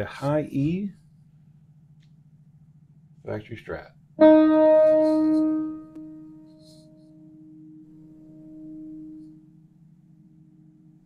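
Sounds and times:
faint steady hum: 0.0 - 11.0
electric guitar string ringing: 4.2 - 9.6.

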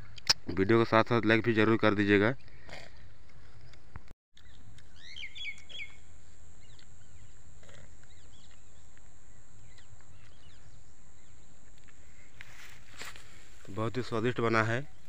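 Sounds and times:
steady outdoor hiss: 0.0 - 15.0
small birds chirping: 3.4 - 15.0.

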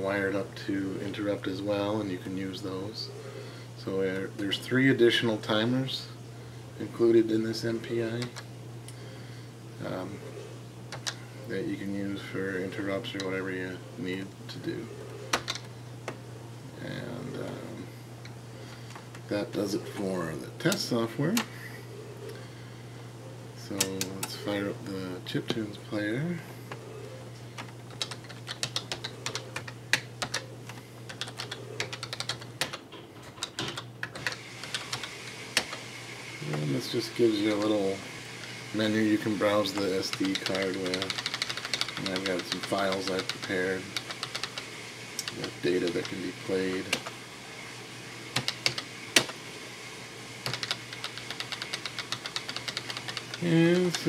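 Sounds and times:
keyboard typing clicks: 27.6 - 30.5, 31.1 - 32.8, 39.7 - 46.2, 48.4 - 49.4, 50.4 - 54.0.

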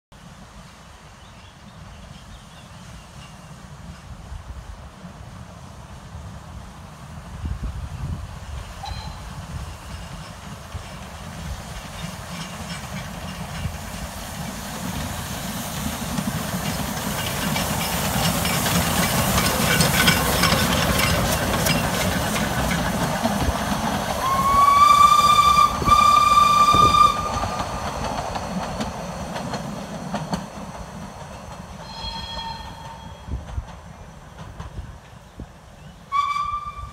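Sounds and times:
steam locomotives passing: 0.2 - 36.9
steam whistle blasts: 8.8 - 9.4, 24.2 - 27.6, 31.8 - 33.4, 36.1 - 36.9.

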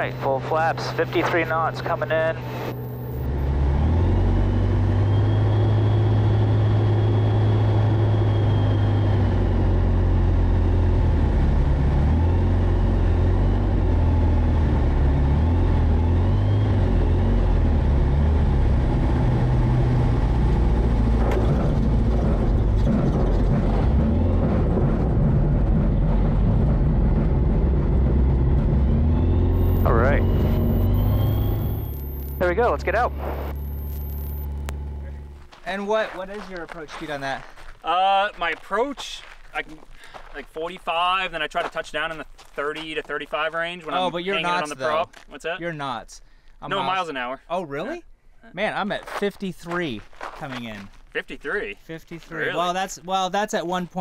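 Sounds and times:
small plane engine and propeller: 0.0 - 35.5.

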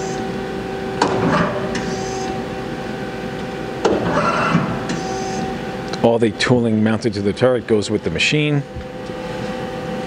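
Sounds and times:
lathe turret clunking and whirring: 0.0 - 7.3
machine humming: 0.0 - 10.0.

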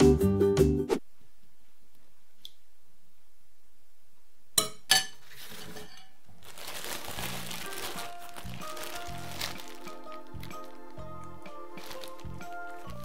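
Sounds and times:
background music: 0.0 - 1.0, 7.0 - 13.0
plastic packaging rustling: 5.2 - 13.0.

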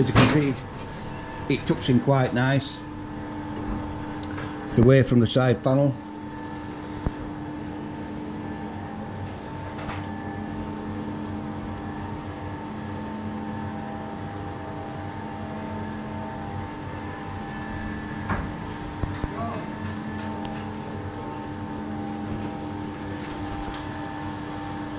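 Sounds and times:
metal lathe humming: 0.0 - 24.9.

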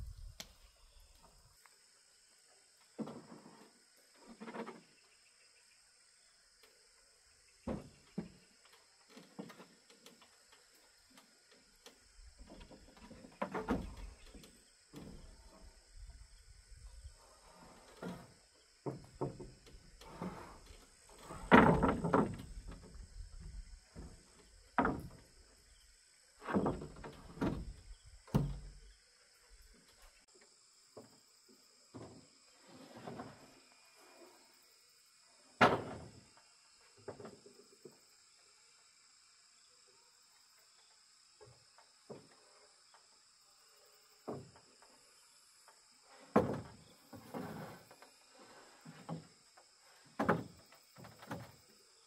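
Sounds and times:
wooden boards thudding and scraping: 3.0 - 4.8, 7.6 - 8.5, 12.2 - 17.0, 17.7 - 25.8, 26.4 - 29.0, 35.6 - 36.3, 46.2 - 49.4, 50.0 - 51.8
high insect buzz: 27.0 - 52.0.

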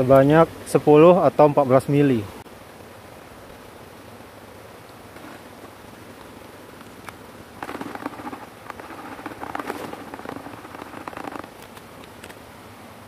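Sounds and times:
water sloshing in plastic bucket: 7.6 - 12.3.

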